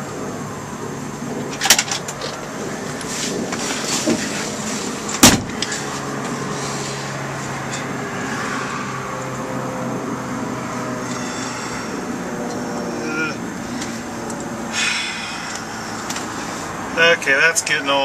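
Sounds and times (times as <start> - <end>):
low hum: 0.0 - 17.0
car door shutting thud: 5.2 - 5.7.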